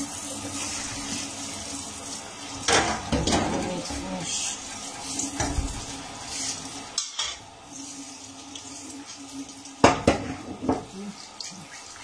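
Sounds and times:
metal pots clattering in sink: 2.6s - 4.3s, 5.2s - 5.9s, 7.0s - 7.5s, 9.8s - 11.0s.

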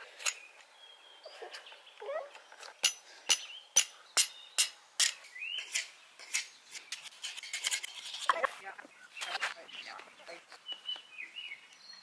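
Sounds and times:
wooden stakes being struck: 2.7s - 8.5s.

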